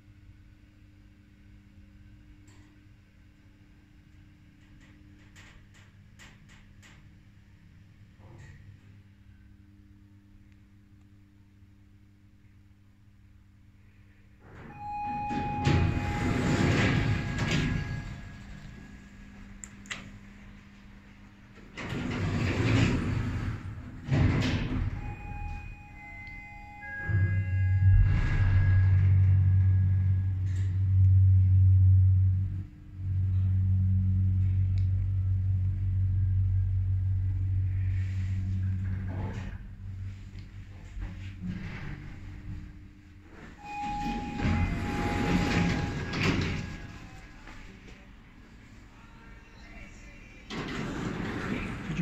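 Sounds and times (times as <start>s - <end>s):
lift doors sliding open: 14.5s - 19.5s, 21.6s - 31.1s, 43.3s - 47.7s, 50.5s - 52.0s
lift arrival chime: 14.6s - 20.0s, 24.5s - 34.6s, 37.6s - 47.8s.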